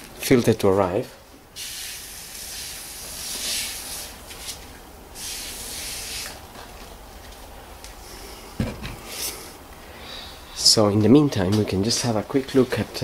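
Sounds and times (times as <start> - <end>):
spray nozzle hissing: 1.6 - 4.2, 5.2 - 6.4.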